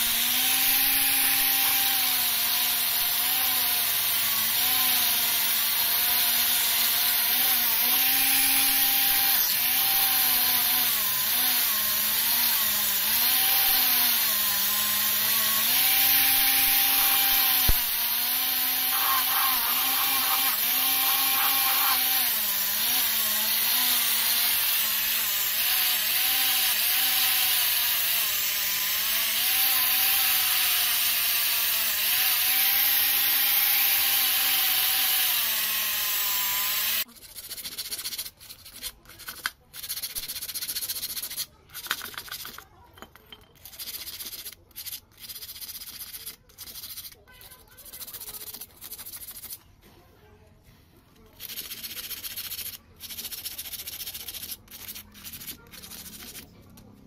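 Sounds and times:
angle grinder motor humming: 0.0s - 37.1s
wire brush scraping metal: 18.8s - 22.3s.

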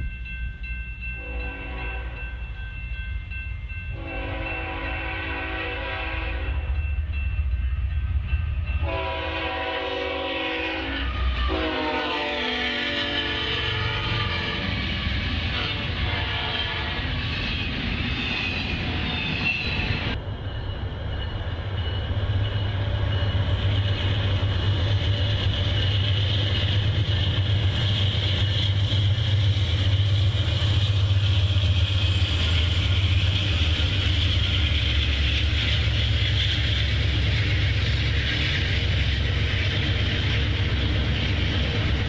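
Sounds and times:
passenger train low hum: 0.0s - 42.0s.

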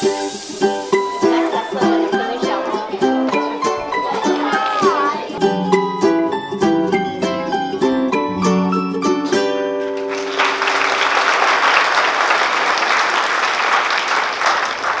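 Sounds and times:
dance music with picked notes: 0.0s - 10.5s
audience applause: 9.8s - 15.0s.

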